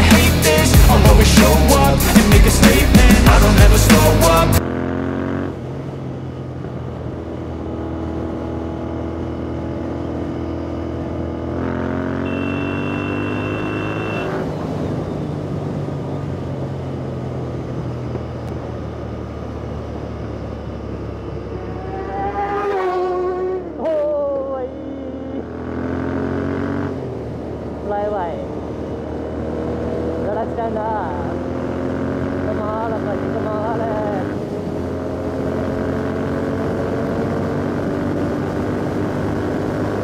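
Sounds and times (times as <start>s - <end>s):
motorcycle engine running: 0.0s - 26.3s
motorcycle horn: 12.1s - 14.5s.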